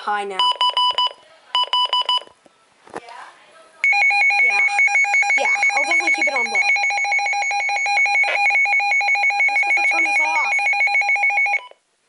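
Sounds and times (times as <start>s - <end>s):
pulsing two-pitch electronic alarm: 3.9s - 11.6s.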